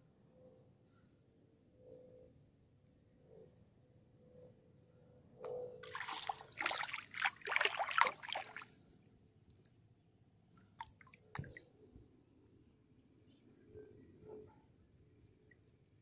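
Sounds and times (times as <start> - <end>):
faint water drips: 5.8 - 8.8, 10.5 - 11.7
water splashing and sloshing: 5.8 - 8.9, 10.5 - 11.7.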